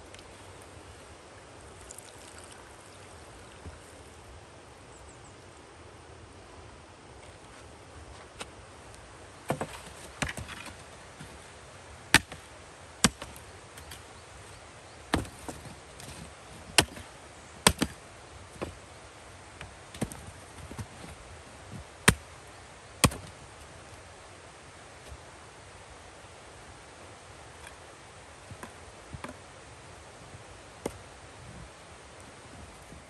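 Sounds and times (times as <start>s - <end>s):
axe chopping wood: 9.5s - 11.3s, 12.1s - 12.4s, 13.0s - 14.0s, 15.1s - 18.0s, 22.0s - 22.3s, 23.0s - 23.3s.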